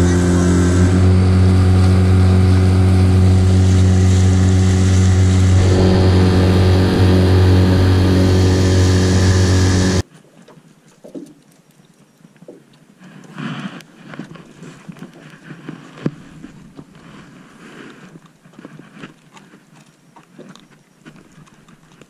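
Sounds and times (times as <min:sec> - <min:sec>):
boat motor humming: 0:00.0 - 0:10.0.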